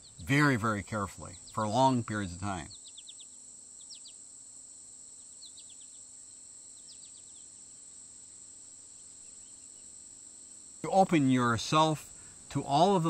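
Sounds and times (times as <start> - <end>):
bird chirping: 0.0 - 4.3, 5.0 - 10.0
insects chorus: 0.0 - 13.0.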